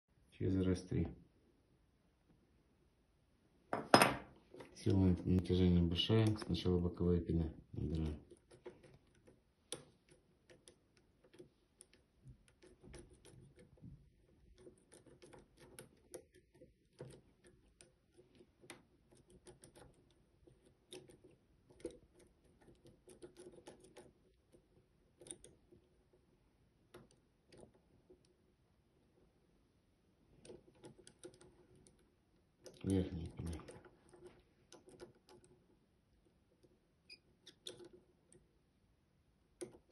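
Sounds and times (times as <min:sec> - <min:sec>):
lock pick clicking in lock: 0:37.1 - 0:38.0.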